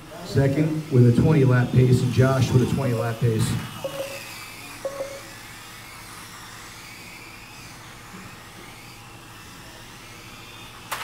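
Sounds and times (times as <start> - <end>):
electric toy car motors whining: 0.0 - 11.0
short tone: 3.8 - 4.3, 4.9 - 5.3.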